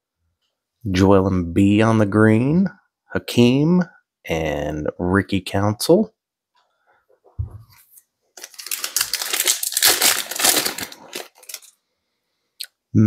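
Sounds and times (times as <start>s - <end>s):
plastic wrapper crinkling: 8.4s - 11.8s.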